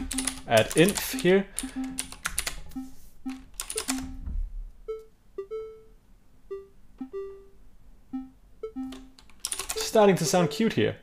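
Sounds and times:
computer keyboard clicks: 0:00.0 - 0:02.6, 0:03.3 - 0:04.1, 0:08.9 - 0:09.8
plucked synth melody: 0:02.6 - 0:09.2.

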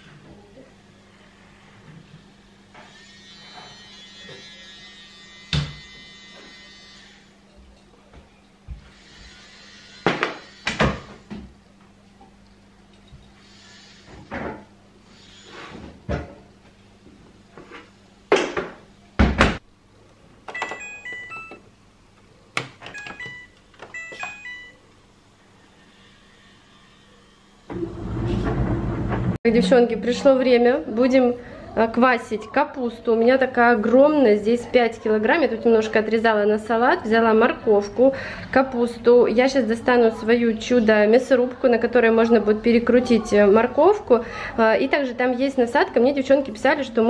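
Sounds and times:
steady electric buzz: 0:02.7 - 0:07.4.

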